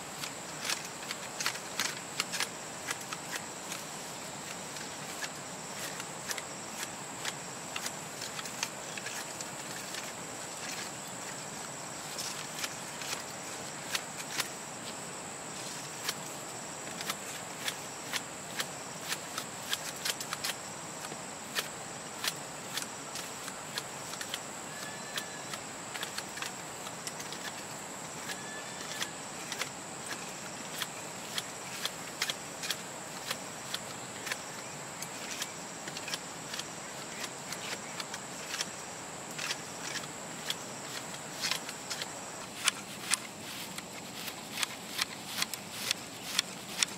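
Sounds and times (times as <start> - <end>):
high-pitched insect drone: 24.1 - 26.4, 27.2 - 30.4.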